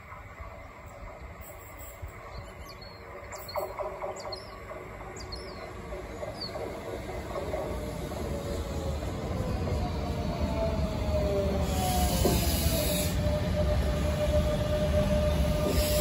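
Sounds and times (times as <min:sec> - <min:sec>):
train rumble: 0:00.0 - 0:16.0
small birds chirping: 0:02.3 - 0:06.8.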